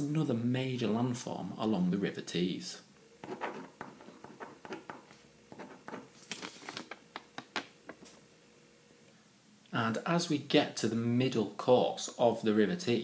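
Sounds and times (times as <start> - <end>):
card rustling: 4.7 - 8.2.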